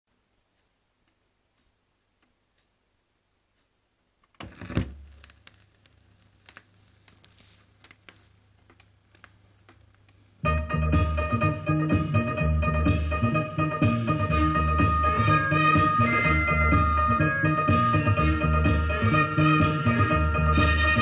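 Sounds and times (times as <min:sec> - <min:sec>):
vinyl surface crackle and pops: 0:03.6 - 0:10.4
stylus landing on vinyl record: 0:04.3 - 0:06.7.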